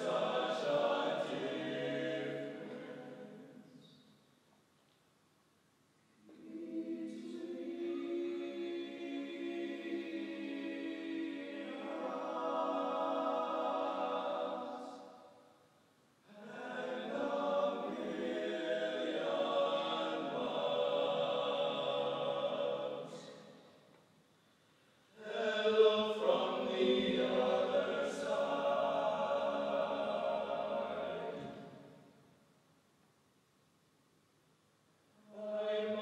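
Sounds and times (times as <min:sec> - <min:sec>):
men's choir singing: 0:00.0 - 0:03.4, 0:06.4 - 0:15.2, 0:16.4 - 0:23.4, 0:25.2 - 0:31.8, 0:35.4 - 0:36.0.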